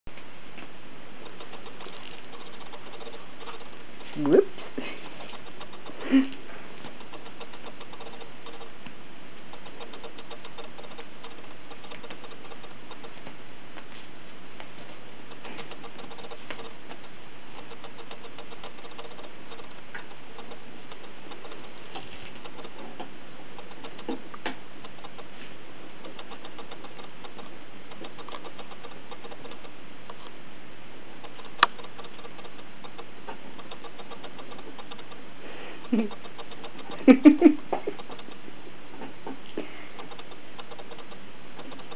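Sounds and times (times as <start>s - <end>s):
kittens pattering and scratching: 0.5s - 30.4s, 31.2s - 41.9s
sharp click: 1.2s - 4.2s, 5.1s - 6.2s, 6.8s - 8.8s, 9.5s - 13.2s, 15.3s - 21.8s, 22.4s - 25.3s, 26.0s - 30.4s, 31.2s - 35.2s, 35.8s - 37.2s, 37.8s - 38.4s, 40.0s - 41.9s.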